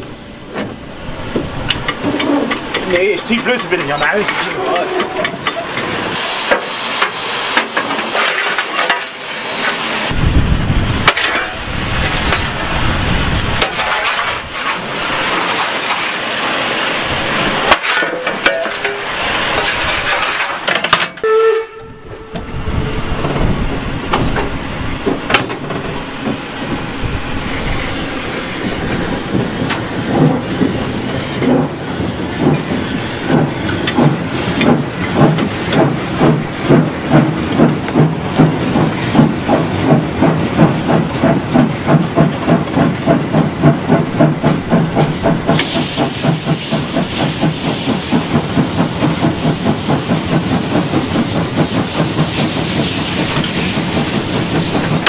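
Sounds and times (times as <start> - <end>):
fire and steam roaring and hissing: 0.0 - 55.0
heavy storm wind: 0.0 - 55.0
steam locomotive exhaust chuffs: 21.2 - 55.0.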